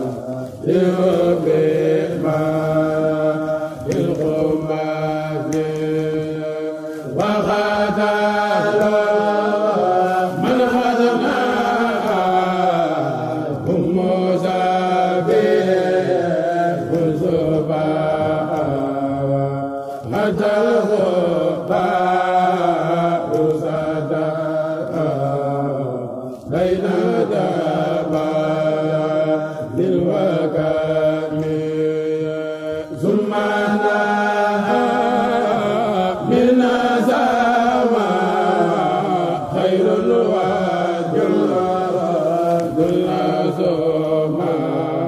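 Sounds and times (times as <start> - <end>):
man chanting unaccompanied: 0.0 - 45.0.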